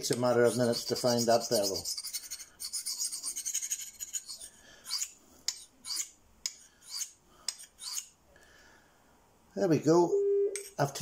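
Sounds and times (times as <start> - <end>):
knife rasping on sharpening stone: 0.1 - 8.1.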